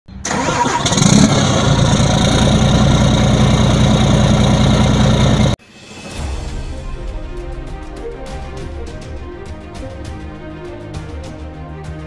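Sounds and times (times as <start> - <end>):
truck engine running: 0.2 - 5.6.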